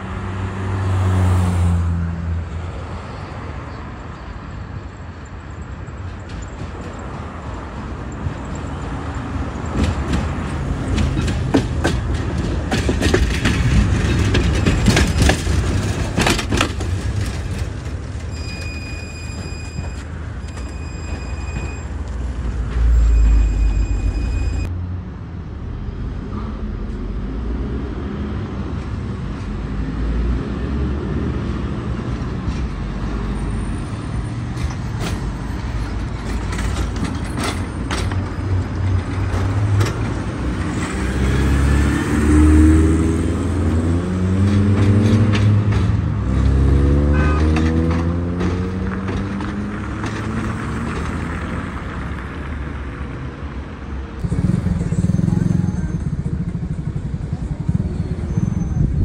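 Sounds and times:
tram running on rails: 0.0s - 59.0s
wheels clicking over track: 5.9s - 22.9s
high door warning beeps: 18.3s - 22.2s, 22.9s - 24.7s.

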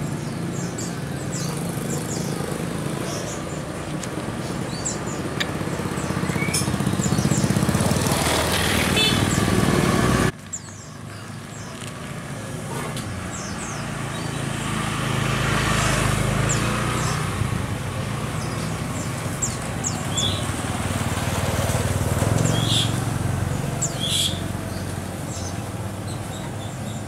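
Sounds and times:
passing traffic engine rumble: 0.0s - 27.0s
high bird chirps: 4.4s - 7.8s, 23.8s - 27.0s.

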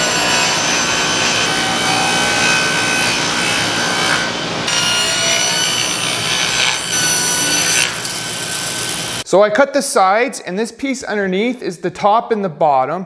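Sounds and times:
table saw cutting plywood: 0.0s - 9.2s.

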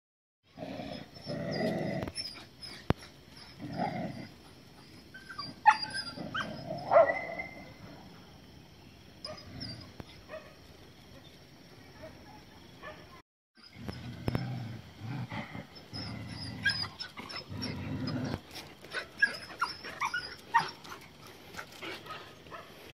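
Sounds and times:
dogs barking and yipping: 0.9s - 7.8s, 9.2s - 10.7s, 15.3s - 22.9s.

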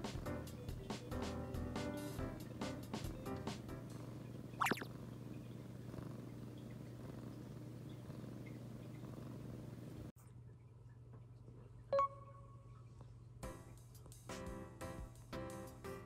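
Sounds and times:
kitten purring: 1.7s - 10.1s.

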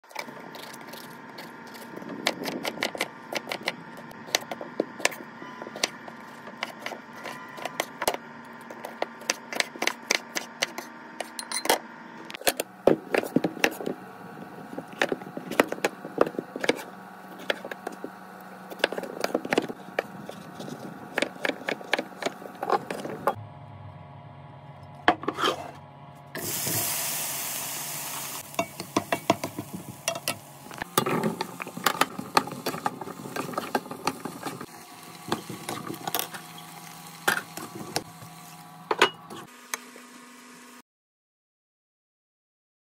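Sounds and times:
vegetables sizzling in hot pan: 26.4s - 30.8s, 31.6s - 38.6s.

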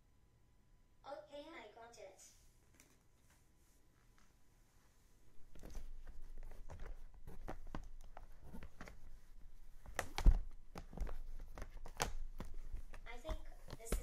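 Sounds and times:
soft clicks taps and rustles: 5.5s - 14.0s.

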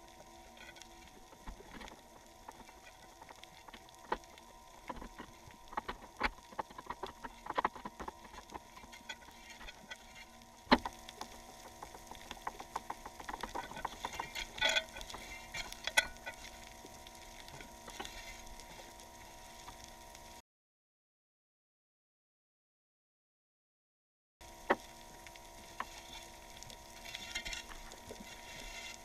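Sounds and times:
faint steady hum: 0.0s - 20.4s, 24.4s - 29.0s
anchor chain knocking underwater: 2.5s - 16.5s.

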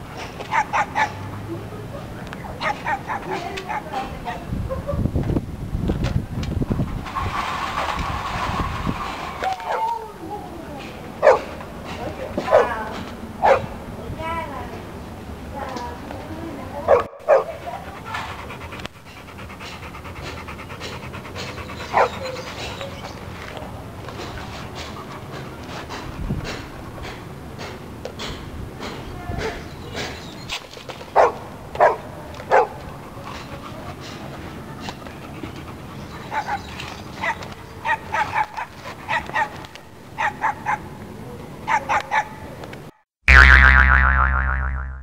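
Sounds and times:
dog panting: 17.0s - 27.8s, 31.1s - 39.6s.

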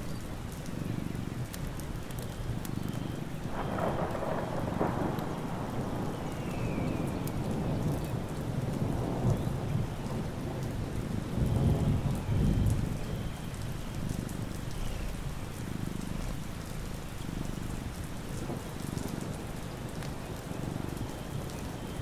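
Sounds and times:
steady rain: 0.0s - 22.0s
thunder: 3.4s - 13.4s.

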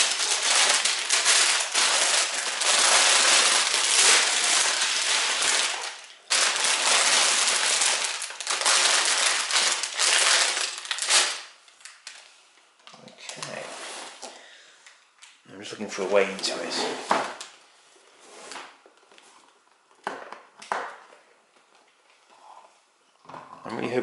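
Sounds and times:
plastic bags crinkling: 0.0s - 12.3s.

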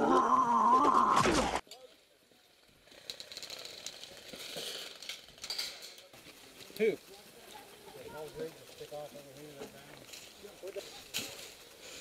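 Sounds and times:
loud wavering vocal cry: 0.0s - 1.3s.

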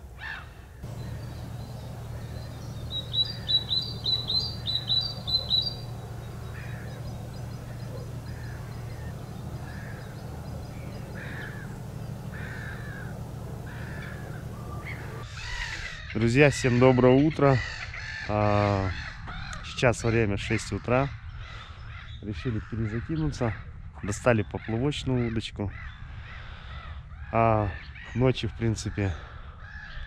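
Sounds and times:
birds calling: 0.0s - 30.0s
gull calling: 0.2s - 17.0s
low hum: 0.8s - 15.3s.

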